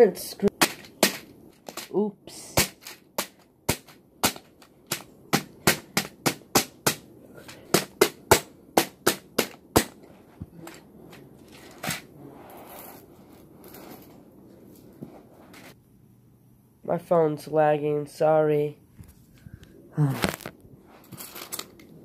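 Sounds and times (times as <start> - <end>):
rustling: 10.0 - 15.8, 20.0 - 22.0.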